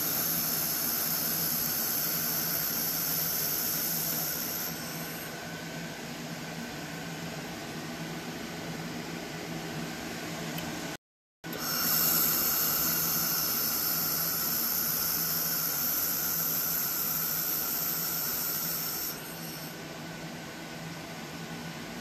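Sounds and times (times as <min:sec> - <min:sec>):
laser welder high hiss: 0:00.0 - 0:05.5, 0:11.5 - 0:19.8.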